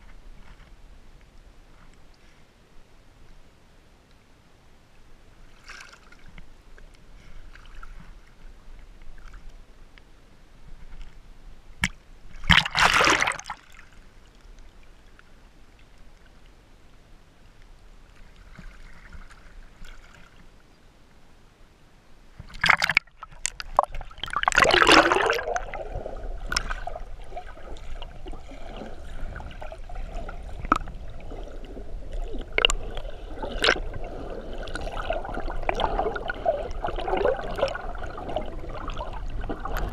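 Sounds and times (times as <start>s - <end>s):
underwater wash: 11.8s - 16.4s, 22.3s - 39.9s
loud splashes: 24.1s - 25.7s.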